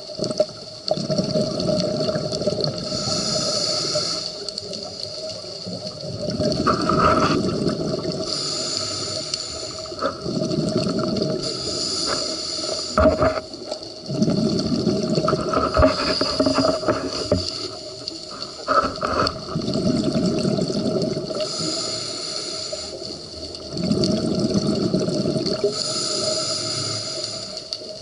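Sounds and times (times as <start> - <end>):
exhaled bubbles gurgling: 0.0 - 28.0
regulator inhalation hiss: 2.8 - 4.6, 8.2 - 10.1, 11.4 - 13.3, 21.3 - 23.2, 25.6 - 27.9.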